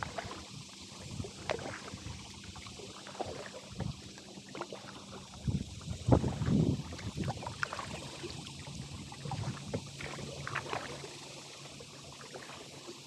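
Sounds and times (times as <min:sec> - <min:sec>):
paddle splashing into water: 0:00.0 - 0:00.4, 0:01.3 - 0:02.0, 0:02.9 - 0:05.5, 0:06.1 - 0:08.2, 0:09.2 - 0:11.2.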